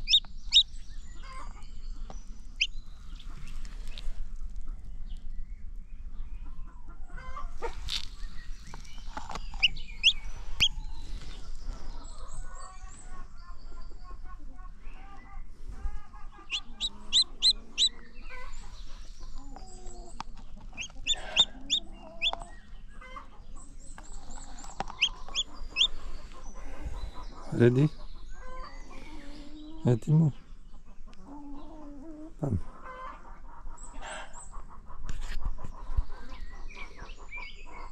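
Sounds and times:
hen clucking: 0:00.0 - 0:01.6, 0:09.1 - 0:12.8, 0:14.1 - 0:37.9
chicks peeping: 0:00.0 - 0:05.3, 0:06.4 - 0:37.9.

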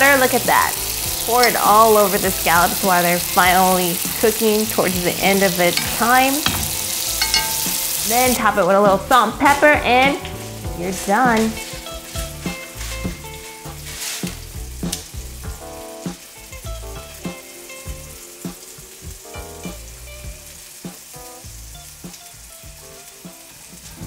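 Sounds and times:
pepper grinder grinding: 0:00.0 - 0:08.4
scallops sizzling in skillet: 0:00.0 - 0:24.0.

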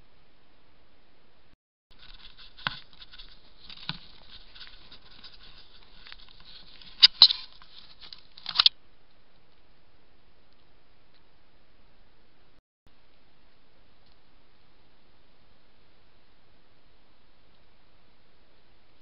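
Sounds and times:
rustling and scratching on camera: 0:01.9 - 0:08.7.

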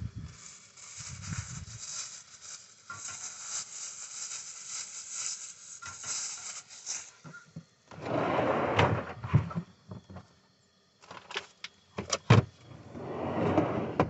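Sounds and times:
food sizzling in a frying pan: 0:00.0 - 0:07.5
plastic packet rustling: 0:00.3 - 0:07.1.

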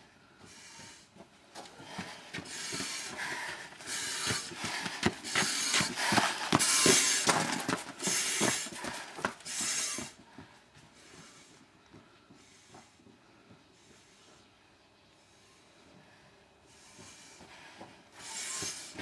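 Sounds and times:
footsteps: 0:00.4 - 0:14.4
breathing apparatus hiss: 0:02.5 - 0:10.2, 0:18.2 - 0:19.0.

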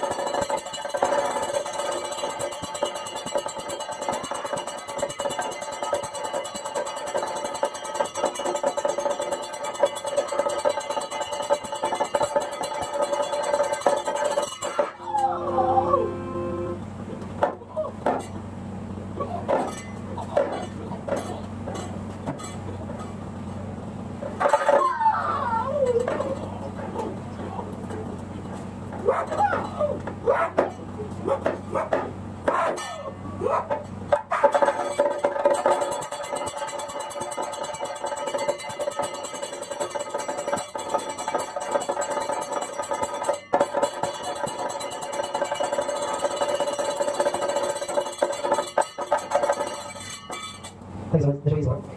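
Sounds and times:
steady ringing tone: 0:00.0 - 0:17.0, 0:19.6 - 0:24.1, 0:34.6 - 0:50.8
drum strokes: 0:00.0 - 0:50.8
steady low hum: 0:00.0 - 0:51.9.

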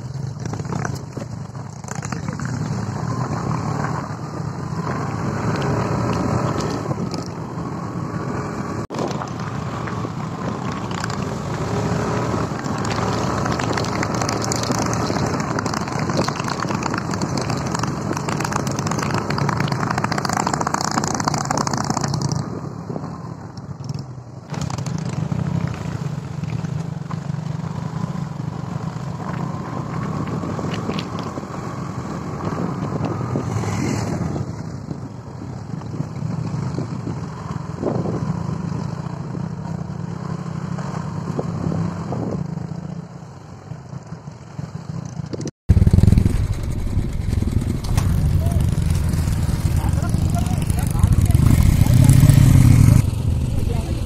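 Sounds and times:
wind noise: 0:00.0 - 0:26.0, 0:29.0 - 0:39.5, 0:41.2 - 0:42.7, 0:45.3 - 0:54.0
motorcycle engine running: 0:00.0 - 0:54.0
tyres on gravel: 0:08.9 - 0:22.2, 0:45.7 - 0:54.0.

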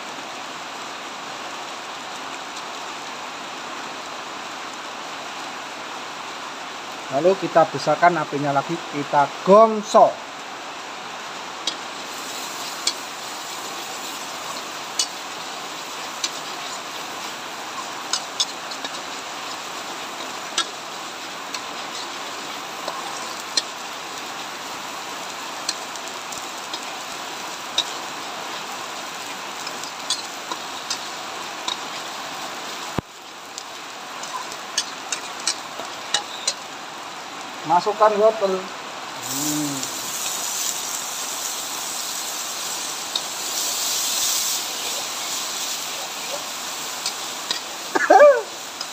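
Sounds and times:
vegetables sizzling in a wok: 0:00.0 - 0:48.9
sharp crackles: 0:11.6 - 0:36.7, 0:39.2 - 0:48.9.

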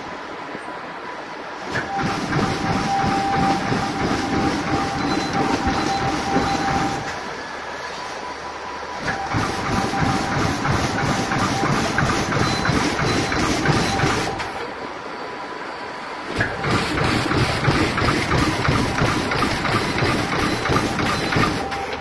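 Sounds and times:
bag making machine clattering: 0:01.7 - 0:07.2, 0:09.0 - 0:14.7, 0:16.3 - 0:22.0.

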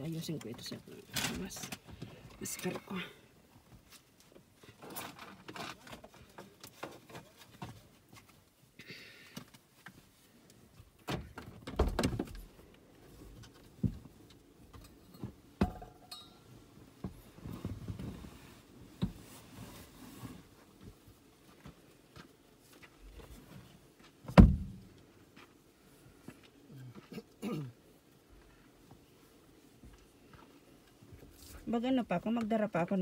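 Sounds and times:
clicks and rustling of handled items: 0:00.2 - 0:03.0, 0:03.6 - 0:15.4
thumps: 0:15.6 - 0:16.4.

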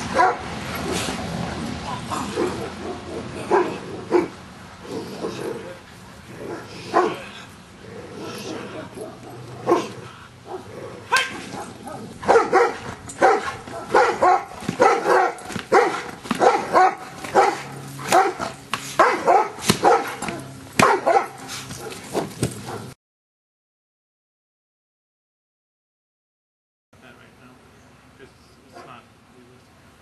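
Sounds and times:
dog barking rapidly: 0:00.1 - 0:00.5, 0:02.3 - 0:04.3, 0:06.5 - 0:07.2, 0:08.5 - 0:23.0.

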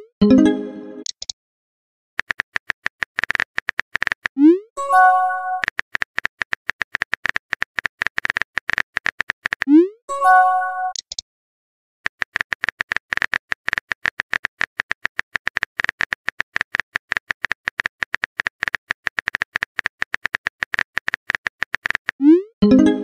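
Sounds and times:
phone keyboard typing clicks: 0:02.2 - 0:04.4, 0:05.6 - 0:09.7, 0:12.1 - 0:22.2.

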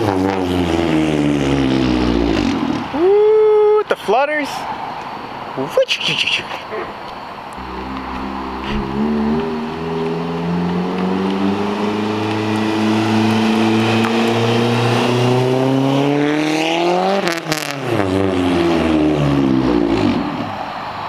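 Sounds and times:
exhaust cracks: 0:07.5 - 0:16.1
car engine accelerating past: 0:07.6 - 0:20.5.

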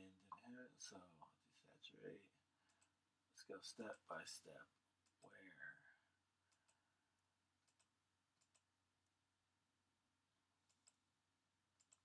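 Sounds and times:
computer mouse clicks: 0:02.6 - 0:03.0, 0:06.5 - 0:06.8, 0:07.6 - 0:08.7, 0:10.6 - 0:11.1, 0:11.8 - 0:12.0.

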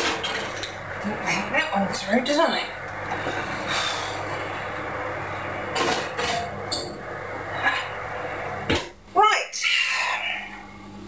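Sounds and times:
background hum and hiss: 0:00.0 - 0:11.0.

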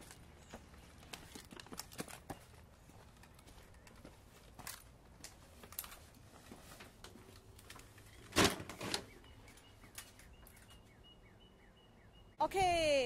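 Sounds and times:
footsteps on stone steps: 0:00.0 - 0:06.8.

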